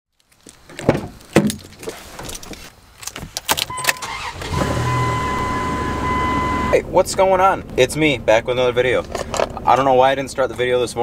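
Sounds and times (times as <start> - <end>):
electronic warning chime: 3.7 - 6.8
engine starting and running: 3.7 - 6.8.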